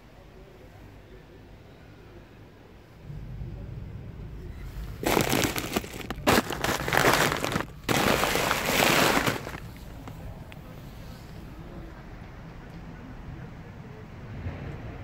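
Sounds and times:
plastic bag crinkling: 5.0s - 10.1s
sharp crackle: 5.0s - 10.2s.

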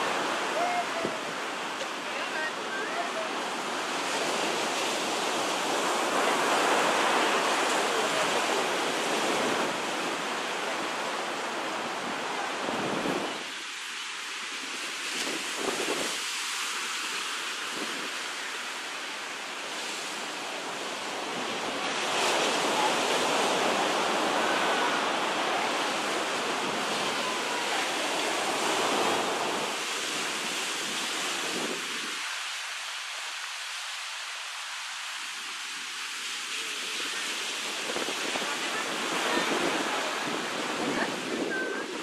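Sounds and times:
surf washing up a beach: 0.0s - 42.0s.

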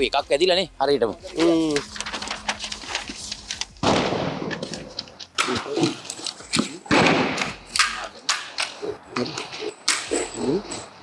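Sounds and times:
gunshots echoing: 3.8s - 9.0s.

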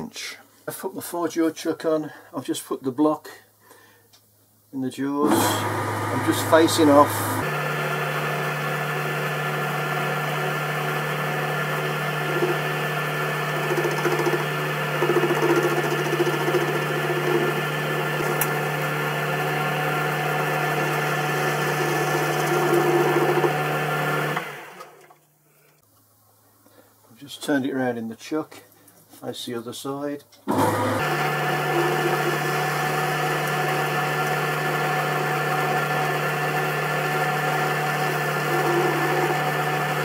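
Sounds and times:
lathe running: 5.2s - 25.0s, 30.5s - 40.0s.

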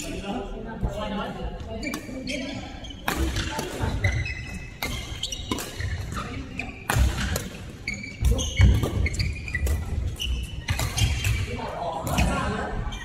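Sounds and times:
sneakers squeaking on court floor: 1.6s - 13.0s
racket striking shuttlecock: 3.0s - 4.0s, 4.8s - 7.6s.

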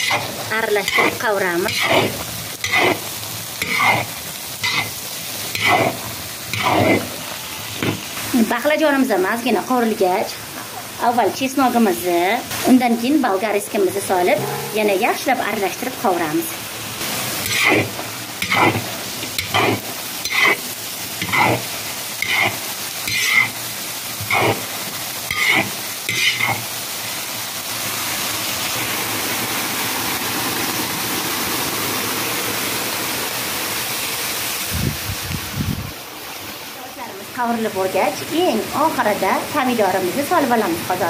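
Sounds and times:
metal spatula scraping a pot: 0.0s - 7.2s, 17.4s - 23.6s, 24.2s - 24.7s, 25.3s - 26.7s
vegetables sizzling in oil: 0.0s - 41.0s.

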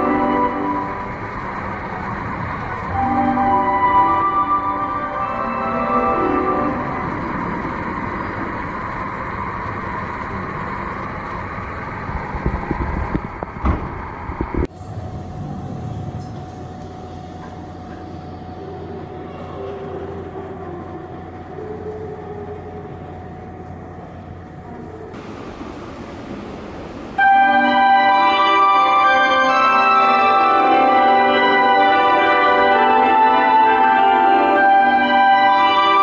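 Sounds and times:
mechanical rumble and hiss: 0.0s - 28.9s
steady hum with low tone: 0.0s - 36.0s.

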